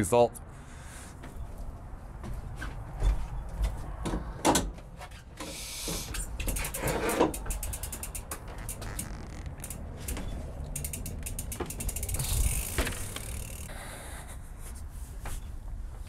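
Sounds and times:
bike knocking and rattling: 3.0 - 13.7
bike freehub ratchet clicking: 6.1 - 13.7.

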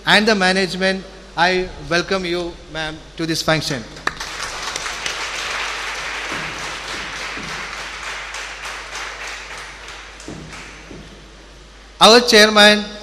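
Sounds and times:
audience applause: 4.0 - 11.1.

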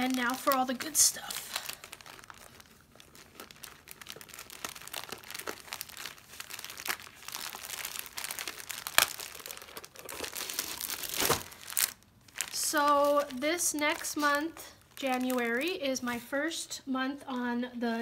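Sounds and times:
plastic bag crinkling: 0.0 - 16.3.

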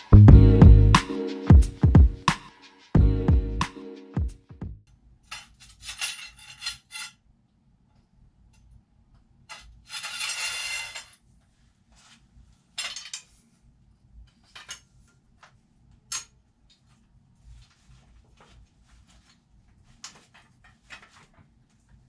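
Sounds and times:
rattling metal scrape: 9.8 - 11.2.

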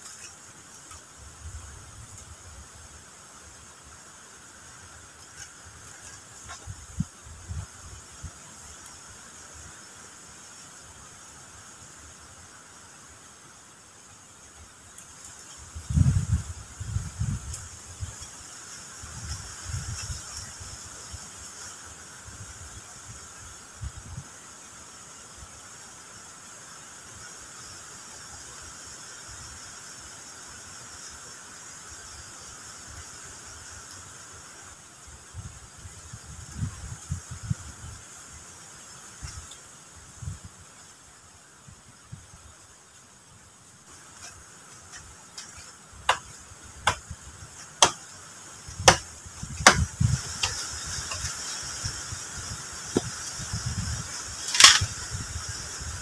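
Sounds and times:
insect chorus buzzing: 0.0 - 56.0
rustling hiss: 0.0 - 56.0
wooden poles knocking together: 49.6 - 51.3, 54.5 - 54.9.

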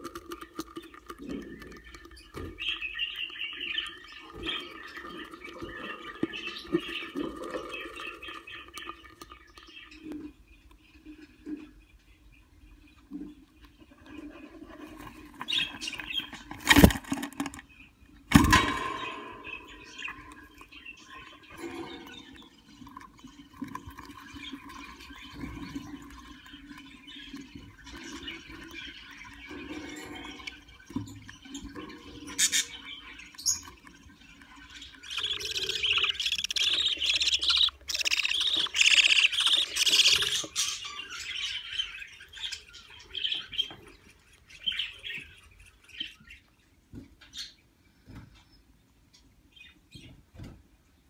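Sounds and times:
bird chicks chirping: 0.0 - 50.2
budgerigars chittering: 24.3 - 46.4
small irregular ticks: 32.4 - 40.5.

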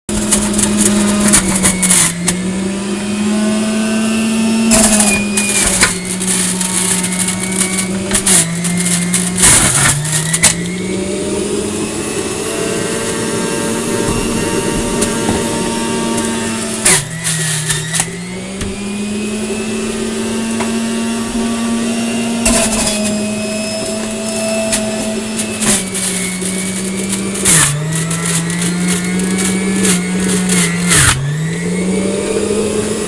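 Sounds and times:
juicer motor whine: 0.1 - 33.0
vegetables grinding: 0.1 - 33.0.

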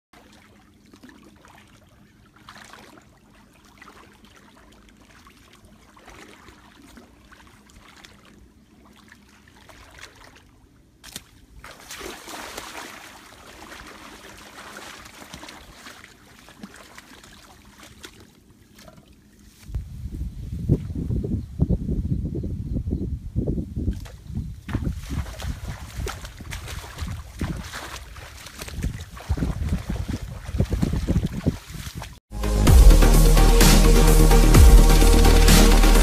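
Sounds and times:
wading through wet grass: 0.2 - 19.8, 24.0 - 32.2.

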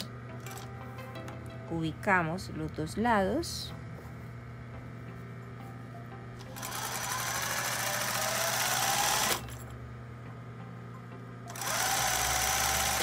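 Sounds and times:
steady low hum: 0.0 - 13.0
sewing machine stitching: 6.5 - 9.6, 11.5 - 13.0.

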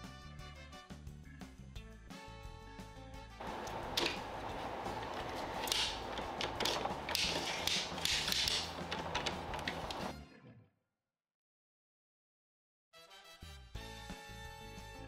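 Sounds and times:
faint steady hum: 3.4 - 10.1
plastic toy parts scraping and clicking: 3.5 - 10.1.

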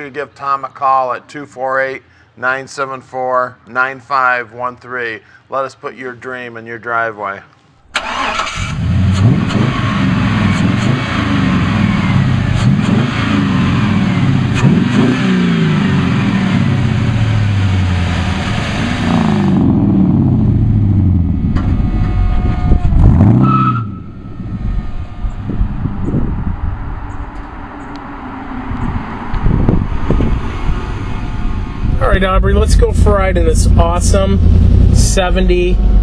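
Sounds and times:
engine revving: 7.9 - 36.0.

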